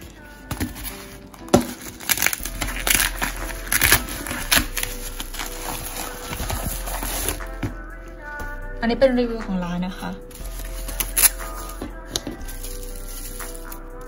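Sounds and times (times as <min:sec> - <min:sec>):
plastic mailer crinkling: 0:00.0 - 0:07.4, 0:10.4 - 0:13.9.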